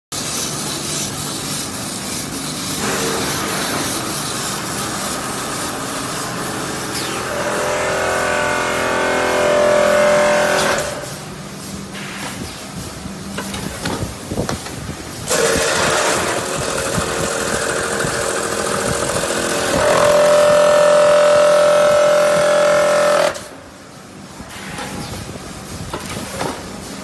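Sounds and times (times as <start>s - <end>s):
machine whine: 0.2s - 11.3s, 15.2s - 23.7s
packing machine running: 13.3s - 24.0s.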